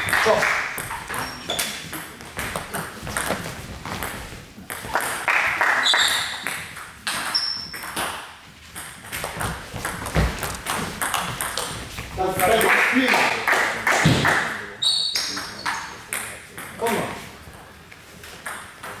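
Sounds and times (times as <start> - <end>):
table tennis ball hits: 0.0 - 12.7.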